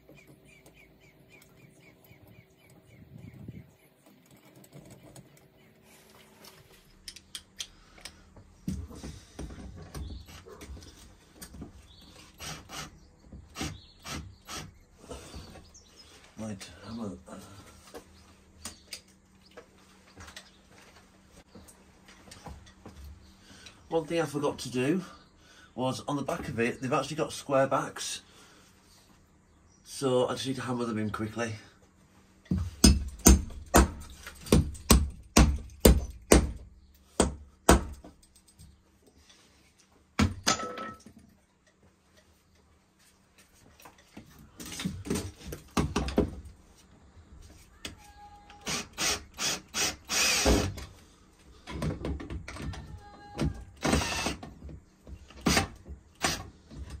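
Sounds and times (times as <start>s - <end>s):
screw grating into wood: 12.1s - 15.5s, 48.6s - 50.8s, 53.8s - 54.4s
hammer knocking bolts into wood: 32.5s - 38.2s
cordless drill driving screw: 48.6s - 50.8s, 53.8s - 54.4s.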